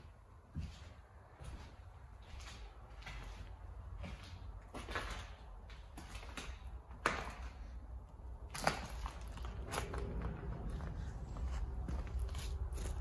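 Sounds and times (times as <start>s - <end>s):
footsteps on debris: 0.5s - 7.7s, 8.4s - 13.0s.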